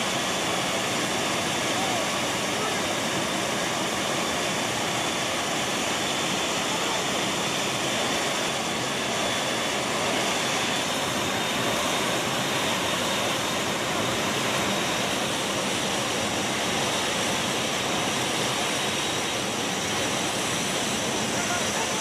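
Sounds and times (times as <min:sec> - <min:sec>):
jet engines roaring: 0:00.0 - 0:22.0.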